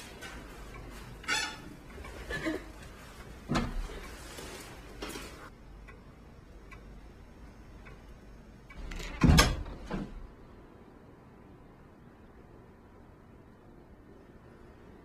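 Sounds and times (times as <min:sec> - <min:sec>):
wall clock ticking: 0:00.0 - 0:09.0.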